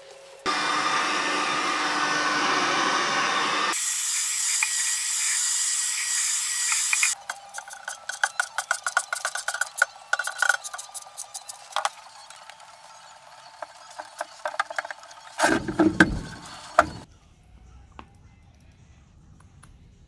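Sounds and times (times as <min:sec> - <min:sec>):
rubber sheet and metal plate clattering: 0:15.4 - 0:17.0.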